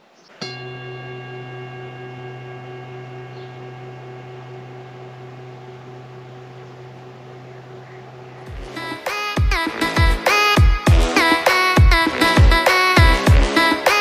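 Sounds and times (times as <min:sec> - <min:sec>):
singing bowl ringing: 0:00.4 - 0:09.2.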